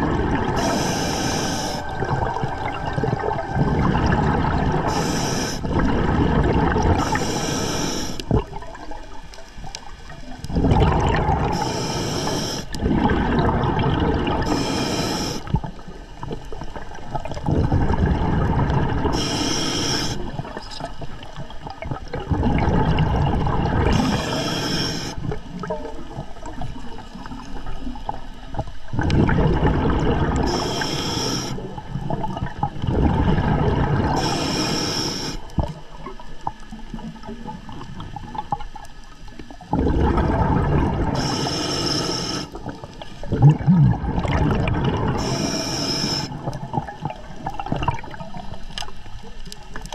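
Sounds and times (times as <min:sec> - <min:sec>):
exhaled bubbles rushing: 0:00.0 - 0:07.5, 0:08.2 - 0:11.9, 0:12.6 - 0:14.7, 0:15.4 - 0:19.4, 0:20.1 - 0:30.9, 0:31.5 - 0:34.6, 0:35.4 - 0:41.9, 0:42.5 - 0:48.7
regulator inhale hiss: 0:00.5 - 0:02.1, 0:04.8 - 0:05.7, 0:07.0 - 0:08.3, 0:11.5 - 0:12.8, 0:14.4 - 0:15.6, 0:19.1 - 0:20.4, 0:23.9 - 0:25.4, 0:30.4 - 0:31.7, 0:34.1 - 0:35.7, 0:41.2 - 0:42.6, 0:45.2 - 0:46.5.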